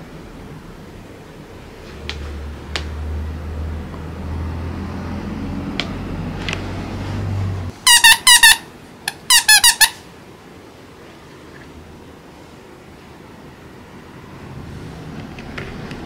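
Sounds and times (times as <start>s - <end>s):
squeaky toy squeaking: 7.7s - 10.0s.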